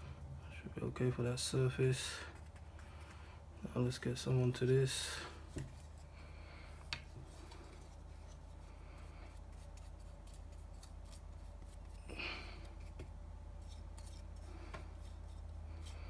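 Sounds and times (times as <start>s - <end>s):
steady low hum: 0.0s - 16.0s
brush dabbing on plastic: 7.1s - 12.0s.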